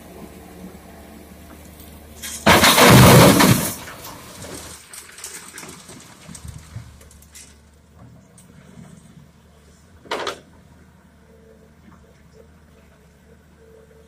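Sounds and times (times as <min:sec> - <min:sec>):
diesel engine humming: 0:00.0 - 0:14.0
gravel crashing into truck bed: 0:02.2 - 0:07.4.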